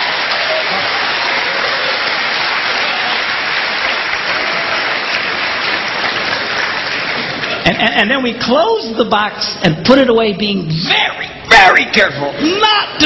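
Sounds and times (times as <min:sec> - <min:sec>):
audience applauding: 0:00.0 - 0:07.7
audience laughing: 0:04.3 - 0:08.0.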